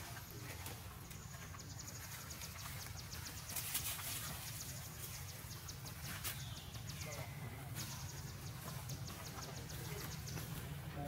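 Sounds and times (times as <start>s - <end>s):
rustling: 0.0s - 7.1s.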